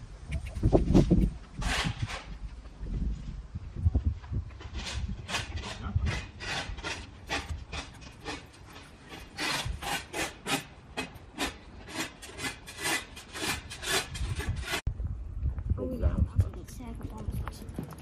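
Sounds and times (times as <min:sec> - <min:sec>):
hand tool rasping strokes: 0:04.6 - 0:14.8.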